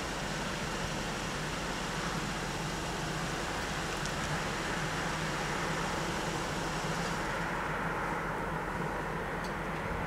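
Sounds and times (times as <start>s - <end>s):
vehicle engine hum: 0.0s - 10.0s.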